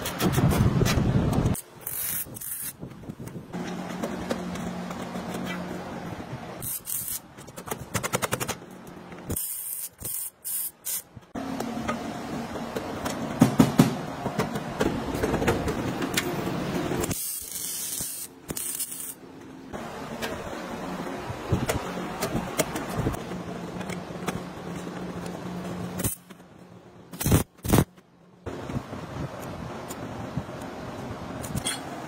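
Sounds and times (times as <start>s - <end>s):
welding hissing crackle: 1.5s - 2.8s, 6.6s - 7.3s, 9.3s - 11.1s, 27.1s - 27.9s.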